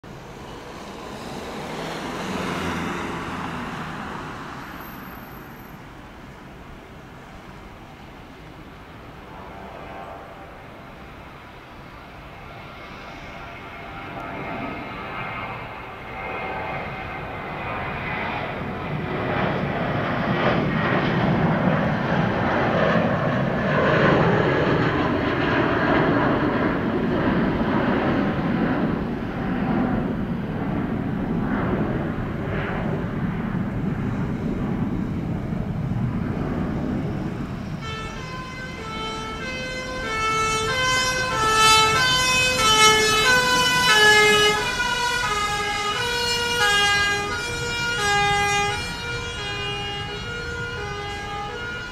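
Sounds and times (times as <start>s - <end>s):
jet engine roar: 0.0s - 51.9s
two-tone fire engine siren: 36.6s - 51.9s.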